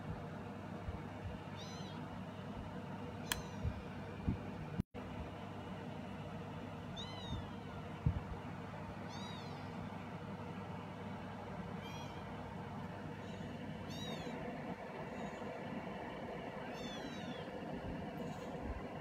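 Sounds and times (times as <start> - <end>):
kittens mewing: 1.5 - 2.1, 6.9 - 7.9, 9.0 - 9.8, 11.7 - 19.0.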